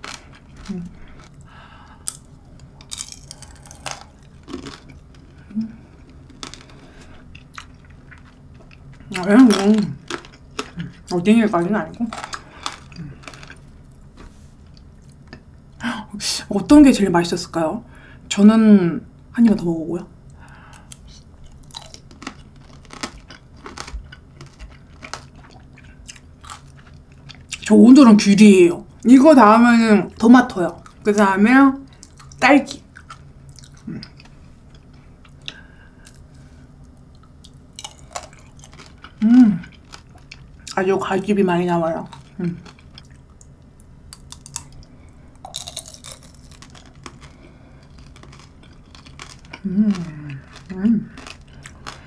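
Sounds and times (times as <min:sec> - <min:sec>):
candy shell crunching: 0:00.0 - 0:14.0, 0:20.8 - 0:27.6, 0:37.5 - 0:40.8, 0:44.1 - 0:52.0.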